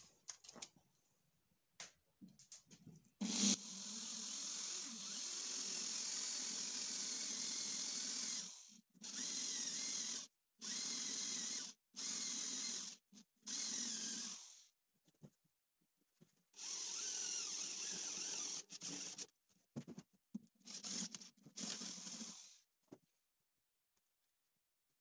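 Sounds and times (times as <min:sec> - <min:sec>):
electric drill boring into wood: 0:03.2 - 0:14.6, 0:16.6 - 0:19.2, 0:20.7 - 0:22.6.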